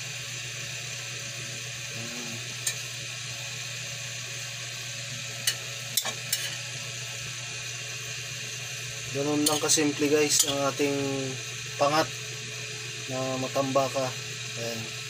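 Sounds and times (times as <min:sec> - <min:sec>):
pot of water hissing: 0:00.0 - 0:15.0
metal tongs clicking on pot: 0:05.4 - 0:06.6, 0:09.4 - 0:10.7.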